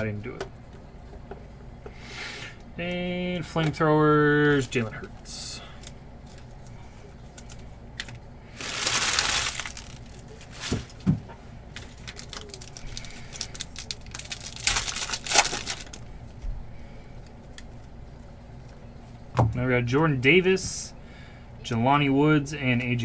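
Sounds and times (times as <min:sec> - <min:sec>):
foil pack crinkling and tearing: 0:07.3 - 0:10.9, 0:11.7 - 0:16.1.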